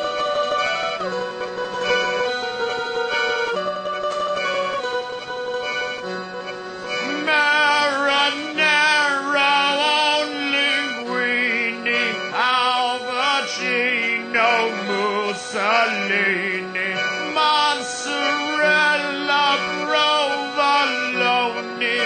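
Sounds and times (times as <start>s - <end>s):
instrumental accompaniment: 0.0s - 22.0s
singer with wide vibrato: 7.0s - 22.0s.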